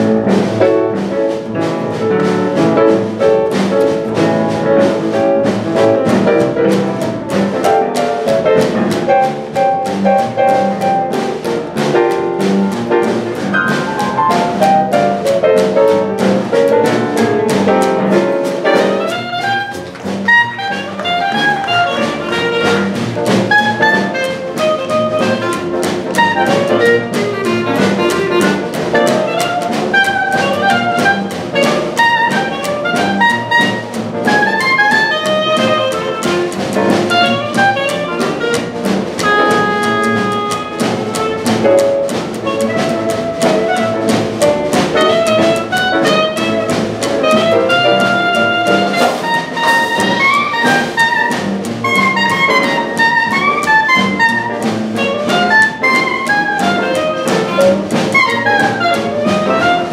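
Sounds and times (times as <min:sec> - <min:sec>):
jazz band playing swing: 0:00.0 - 0:59.9
clarinet solo: 0:18.8 - 0:41.6, 0:42.4 - 0:59.9.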